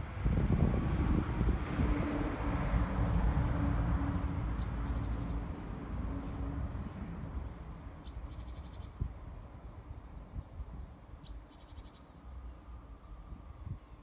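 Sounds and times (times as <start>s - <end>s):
distant train rumble and hum: 0.0s - 11.2s
bird chirp and trill: 4.5s - 5.5s, 7.5s - 14.0s.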